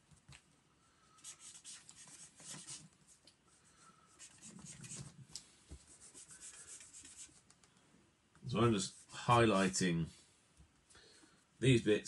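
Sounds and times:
marker scratching on paper: 1.2 - 2.9, 4.1 - 5.2, 5.8 - 7.4.

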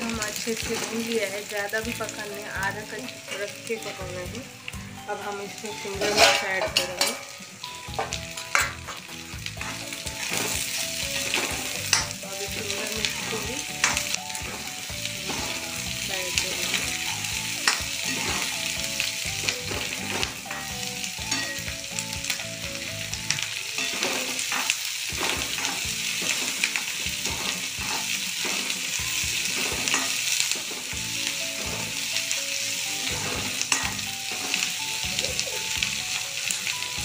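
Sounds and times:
vegetables sizzling in hot oil: 0.0 - 37.0
spatula scraping a wok: 5.8 - 7.4, 9.6 - 12.2, 12.8 - 21.6, 23.7 - 32.1.

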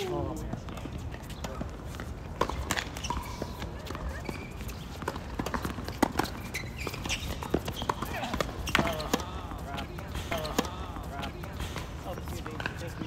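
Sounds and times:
rackets striking tennis ball: 0.2 - 13.0
shoe squeaks: 1.0 - 10.9.

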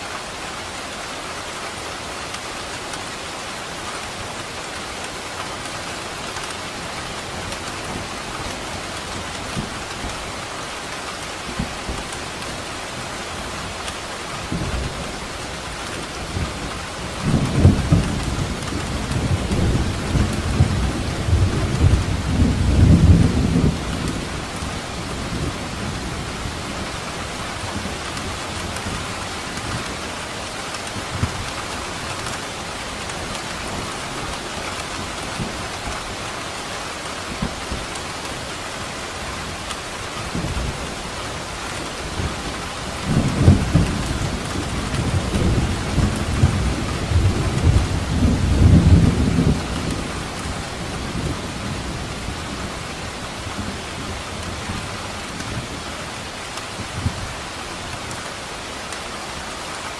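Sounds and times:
heavy rain hiss: 0.0 - 59.9
rolling thunder: 15.9 - 26.9, 41.8 - 52.9.

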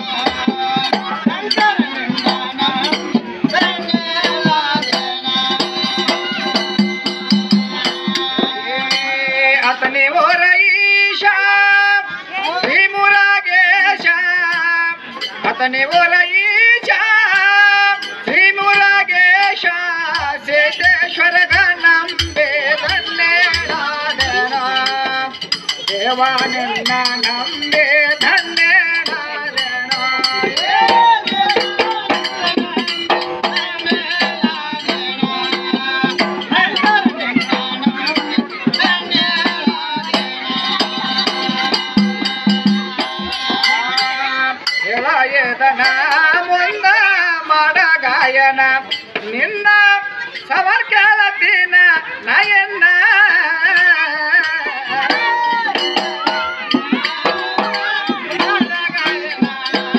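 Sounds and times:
jingling rattling percussion: 0.0 - 59.9
men singing: 0.0 - 59.9.

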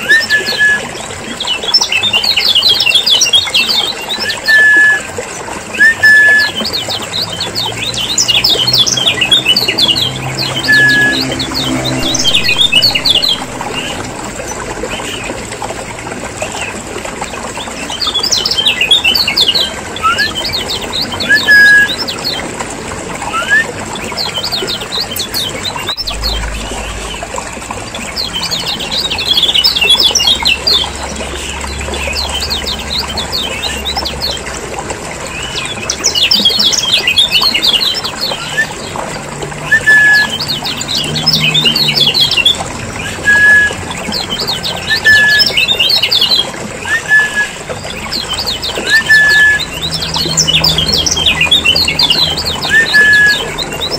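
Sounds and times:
birds chattering: 6.6 - 15.6.

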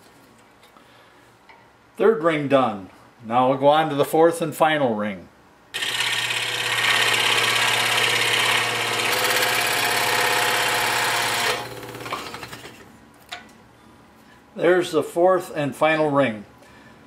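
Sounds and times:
scroll saw cutting wood: 5.8 - 12.8.

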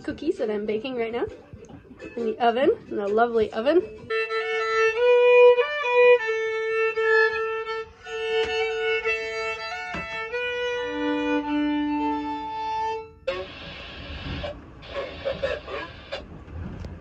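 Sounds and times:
solo fiddle long notes: 4.0 - 14.5.

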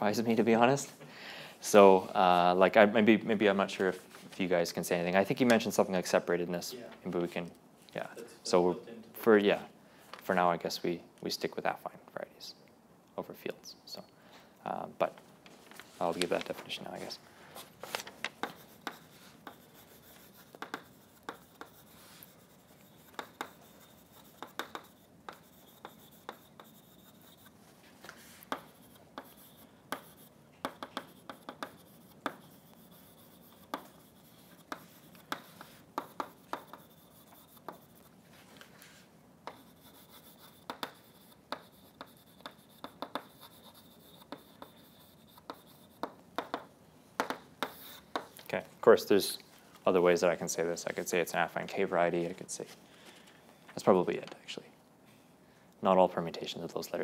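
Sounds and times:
chalk writing on a blackboard: 18.4 - 48.4.

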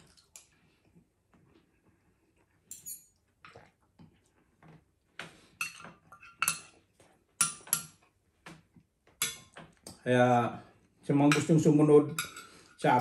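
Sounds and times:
cutlery clinking on ceramic plate: 5.6 - 6.8, 11.3 - 13.0.

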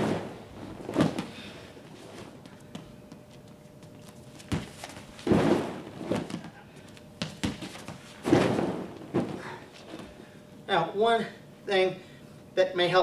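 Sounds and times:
feet and bodies thudding on mats: 0.0 - 10.3
heavy thud onto crash pad: 5.2 - 6.3.

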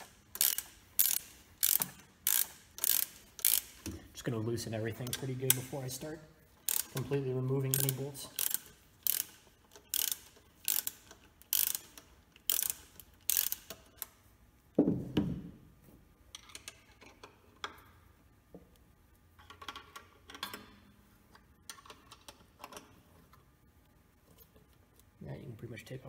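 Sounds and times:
metal parts clicking and scraping: 0.0 - 4.0, 5.0 - 14.1
ratchet wrench clicking: 0.0 - 4.0, 6.6 - 14.1.

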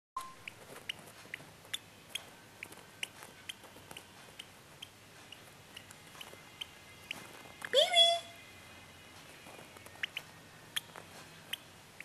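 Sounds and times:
bird chick cheeping: 4.8 - 8.4, 9.4 - 12.0.

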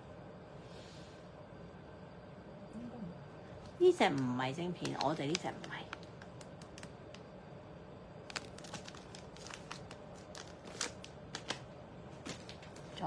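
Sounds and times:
plastic wrapping crinkling: 4.7 - 7.3, 8.2 - 13.0.

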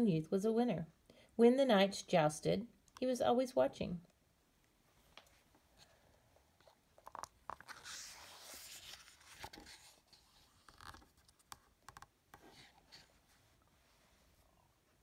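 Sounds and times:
paper crinkles and clicks: 7.0 - 12.1
paper page being turned: 7.1 - 11.6.

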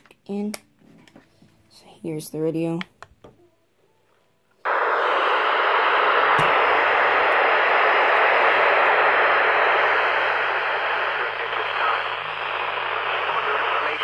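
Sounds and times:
low hum: 4.7 - 14.0
radio static: 4.7 - 14.0.

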